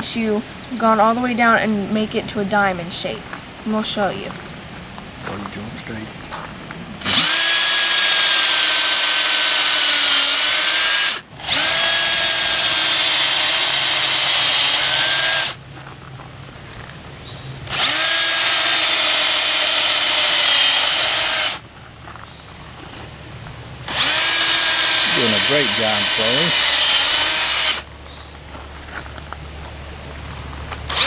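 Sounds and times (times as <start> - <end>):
electric drill boring into log: 7.0 - 15.6, 17.7 - 21.6, 23.9 - 27.9.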